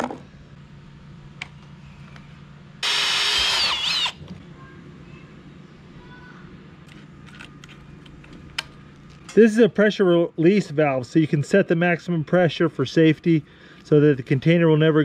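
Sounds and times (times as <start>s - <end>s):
power drill whining: 2.8s - 4.2s.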